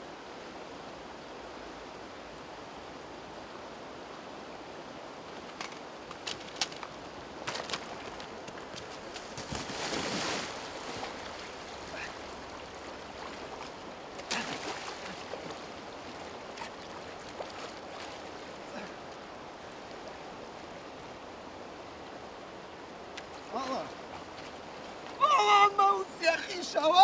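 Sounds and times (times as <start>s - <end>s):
river water flowing over stones: 0.0s - 27.0s
splashing of wading: 5.4s - 20.8s, 23.0s - 25.7s.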